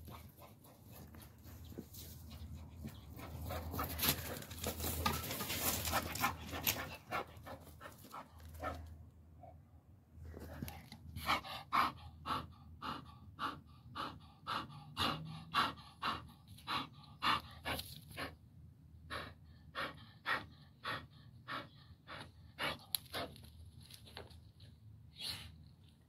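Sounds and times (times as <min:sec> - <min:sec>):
dog panting: 0:00.0 - 0:08.9, 0:11.2 - 0:18.4, 0:19.0 - 0:23.5.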